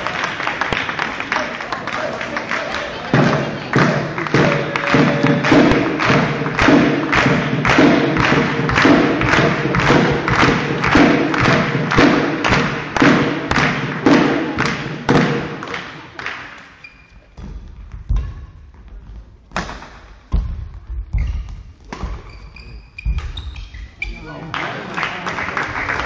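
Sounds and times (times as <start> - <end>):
spectators beating a rhythm: 0.0 - 22.2
racket hitting shuttlecock: 3.9 - 16.0, 19.5 - 23.8
shoes squeaking on court: 16.8 - 19.2, 21.1 - 24.4.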